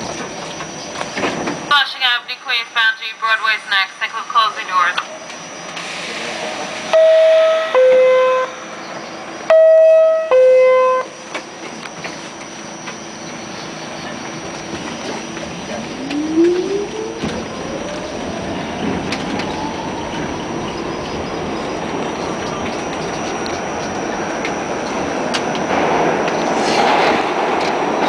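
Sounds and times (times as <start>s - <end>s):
traction motors whining: 4.2s - 26.5s
wheels clattering on rails: 11.2s - 28.0s.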